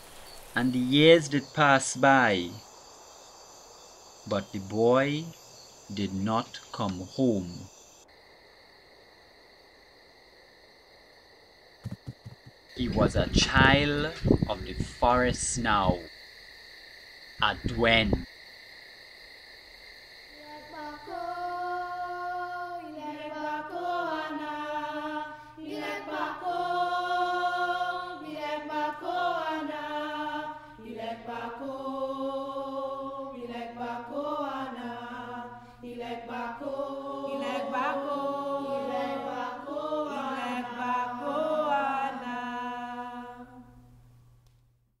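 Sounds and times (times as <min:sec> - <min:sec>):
slow chant-like singing: 0:20.4 - 0:43.9.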